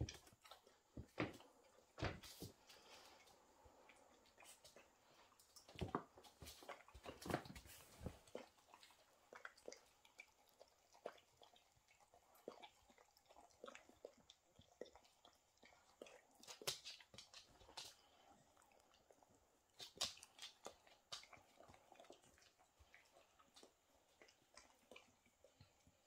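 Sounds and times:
dog chewing dry kibble: 5.6s - 25.3s.

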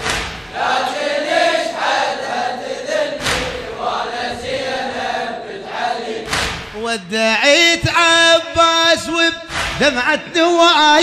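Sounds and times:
voices singing mourning chant: 0.5s - 11.0s
deep thump: 3.2s - 3.7s, 9.5s - 9.9s.

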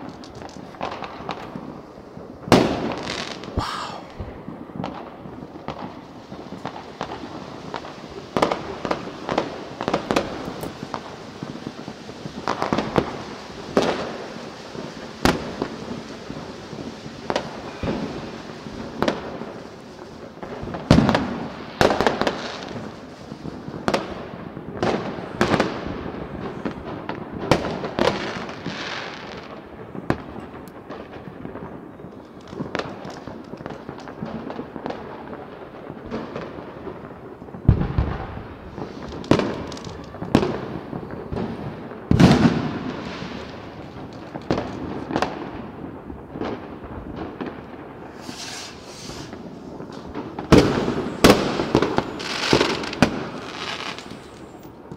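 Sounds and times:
firework bangs: 0.0s - 54.9s
deep firework booms: 0.6s - 19.6s, 35.9s - 54.5s.

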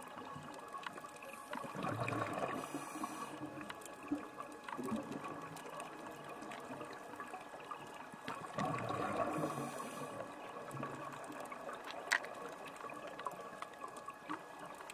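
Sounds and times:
underwater water noise: 0.0s - 14.9s
sharp underwater clicks: 10.8s - 14.9s.

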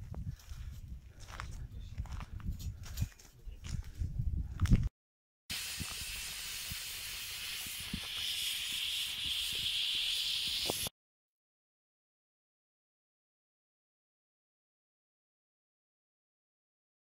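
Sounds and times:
wind rumble on microphone: 0.0s - 4.9s
wood fire hissing and crackling: 5.5s - 10.9s.

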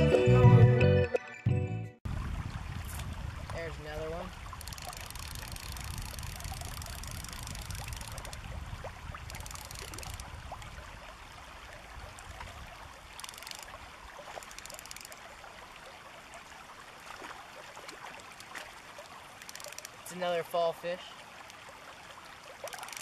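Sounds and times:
wind rumble on microphone: 2.1s - 14.2s
river babbling over gravel: 2.1s - 23.0s
fast ticking bursts: 4.6s - 8.4s, 9.3s - 10.3s, 13.2s - 13.7s, 14.4s - 15.2s, 19.4s - 20.1s, 22.7s - 23.0s.

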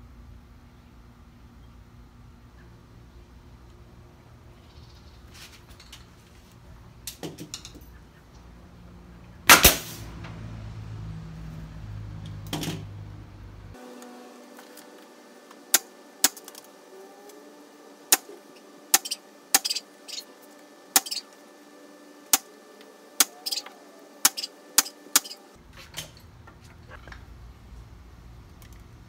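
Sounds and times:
pneumatic nailer firing: 9.5s - 10.2s, 13.8s - 16.8s, 18.1s - 20.3s, 20.9s - 21.3s, 22.2s - 22.6s, 23.2s - 25.4s.

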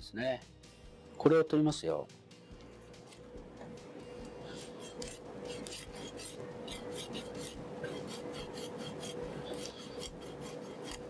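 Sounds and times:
knife scraping fish scales: 4.4s - 11.0s.

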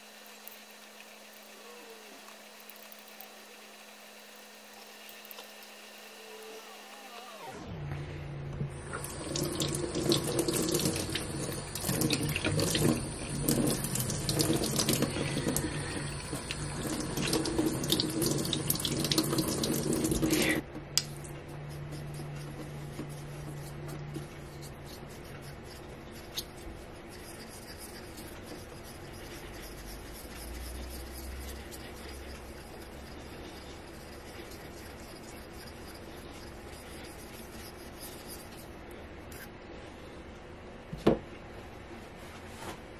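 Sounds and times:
tap water running into sink: 8.8s - 20.6s
stone scraping on whetstone: 21.8s - 38.7s.

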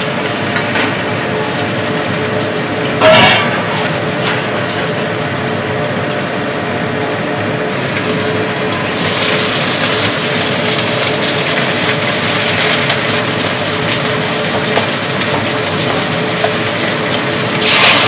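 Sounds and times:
steady hum: 0.0s - 18.0s
fish sizzling in oil: 3.0s - 5.7s, 7.7s - 18.0s.

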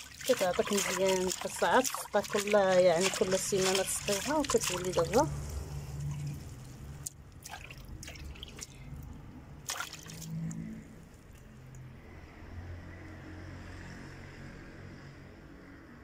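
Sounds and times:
short water splashes: 0.0s - 11.4s
water dripping and trickling: 0.0s - 11.9s.

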